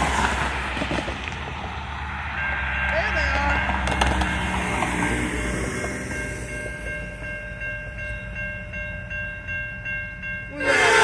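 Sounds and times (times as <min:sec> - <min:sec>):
freight train rumble: 0:00.0 - 0:11.0
railroad crossing bell ringing: 0:02.0 - 0:11.0
train air horn blowing: 0:10.5 - 0:11.0.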